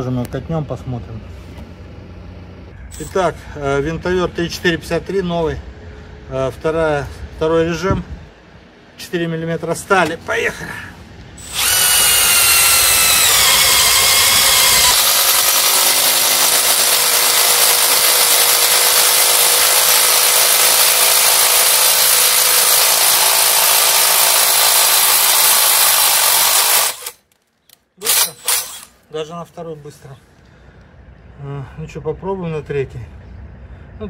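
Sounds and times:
impact driver drilling steel: 11.4 - 27.2, 28.0 - 29.0.

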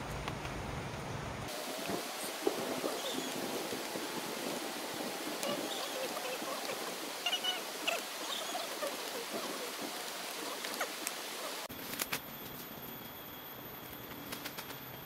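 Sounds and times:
hiss of water: 1.5 - 11.7.

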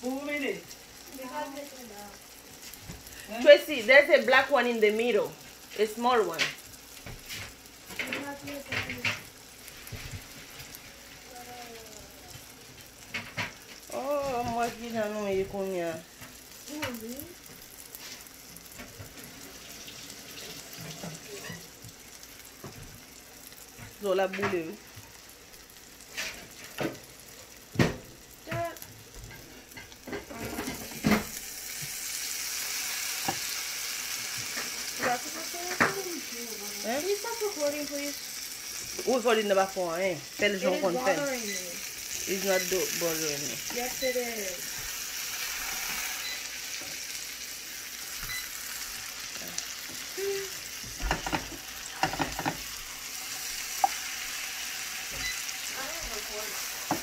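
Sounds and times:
food sizzling in a skillet: 0.0 - 57.0
spatula scraping a pan: 20.4 - 21.8, 26.0 - 26.9.

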